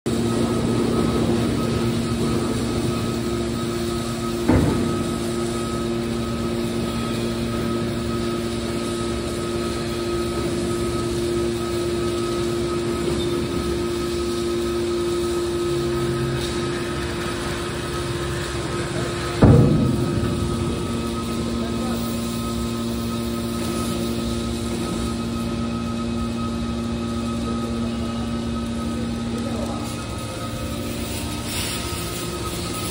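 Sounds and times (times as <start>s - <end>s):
hydraulic power pack humming: 0.1s - 32.9s
metallic clank: 19.2s - 22.8s.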